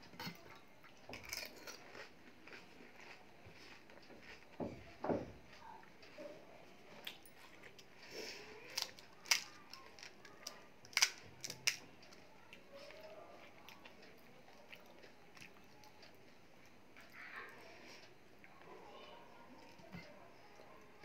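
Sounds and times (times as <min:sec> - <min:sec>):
crisp shells crunching: 0:08.7 - 0:12.2.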